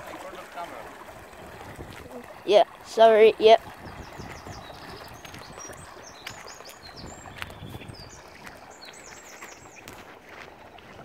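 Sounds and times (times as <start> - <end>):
small birds chirping: 3.5 - 11.0.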